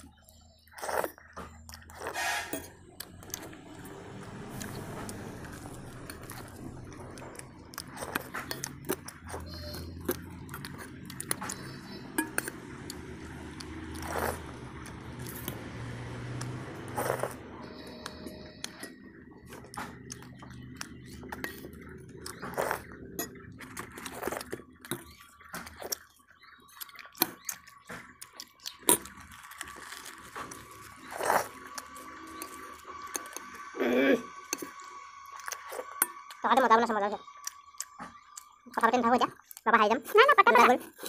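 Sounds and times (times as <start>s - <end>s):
chewing: 0.0s - 41.0s
spoons clinking against steel bowls: 11.5s - 13.0s.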